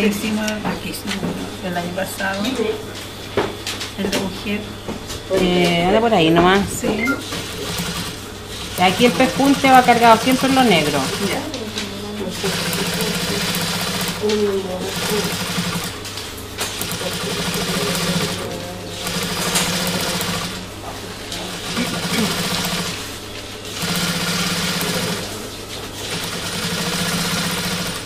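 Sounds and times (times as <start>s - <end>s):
sewing machine stitching: 7.3s - 11.5s, 12.4s - 16.0s, 16.8s - 20.6s, 21.6s - 23.0s, 23.8s - 25.4s, 26.0s - 28.0s.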